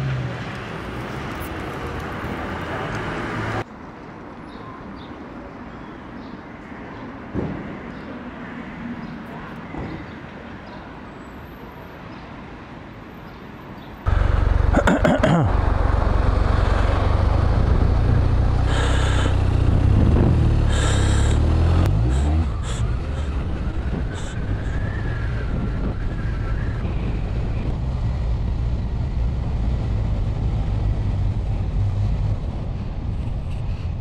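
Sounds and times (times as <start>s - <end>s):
distant traffic: 0.0s - 34.0s
motorcycle engine rumble: 14.1s - 34.0s.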